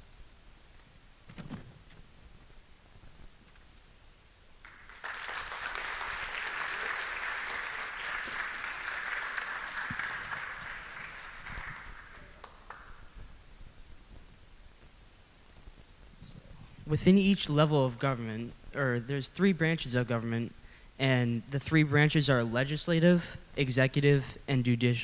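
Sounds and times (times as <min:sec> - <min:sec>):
audience applauding: 0:04.6 - 0:13.2.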